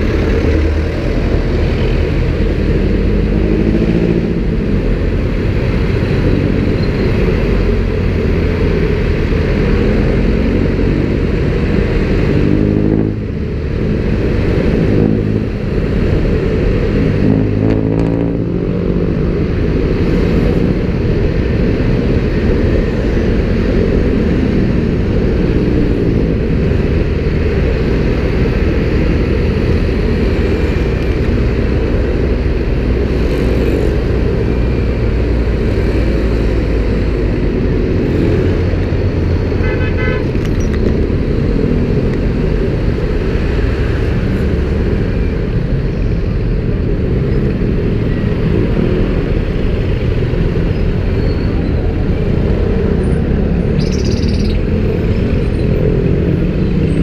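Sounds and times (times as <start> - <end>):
car and motorcycle engines: 0.0 - 57.0
low traffic rumble: 0.0 - 57.0.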